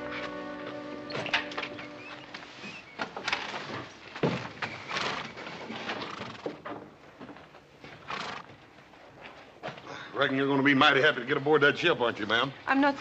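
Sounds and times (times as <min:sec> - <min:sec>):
horses stamping hooves: 0:00.0 - 0:09.9.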